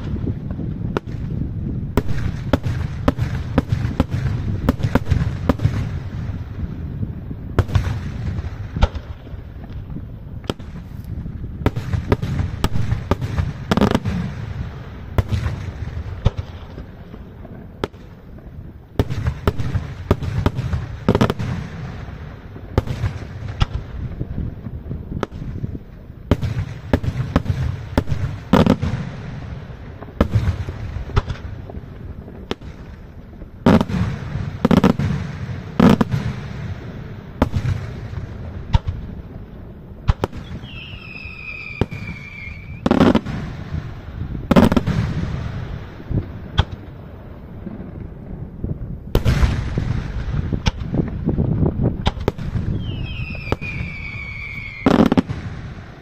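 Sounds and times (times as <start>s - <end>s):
heavy firework booms: 0.0s - 56.0s
falling firework whistle: 40.2s - 43.3s, 52.6s - 55.7s.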